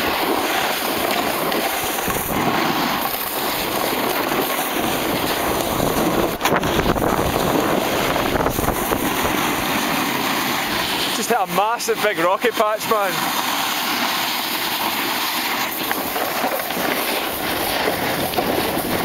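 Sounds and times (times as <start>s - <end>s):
wind on microphone: 0.0s - 11.2s, 15.0s - 19.0s
snowboard scraping over snow: 0.0s - 19.0s.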